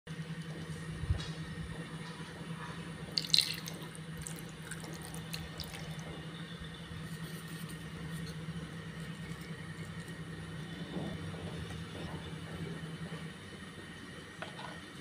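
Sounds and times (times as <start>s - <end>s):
low hum: 0.1s - 15.0s
liquid splashing and dripping: 3.2s - 6.1s.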